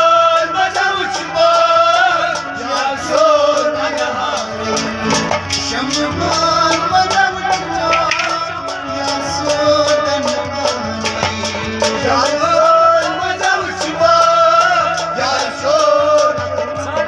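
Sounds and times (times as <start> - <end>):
harmonium: 0.0 - 17.0
man singing a folk song: 0.0 - 17.0
percussion beat: 0.0 - 17.0.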